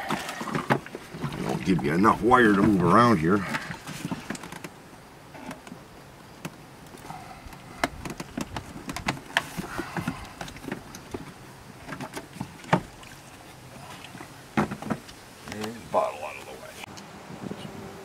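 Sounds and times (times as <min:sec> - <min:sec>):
plastic bottle scraping and knocking: 0:02.5 - 0:04.8, 0:07.6 - 0:12.9.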